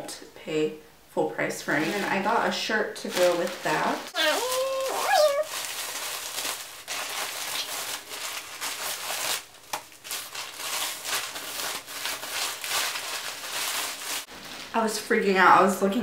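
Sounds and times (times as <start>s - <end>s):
plastic bag crinkling: 3.0s - 14.8s.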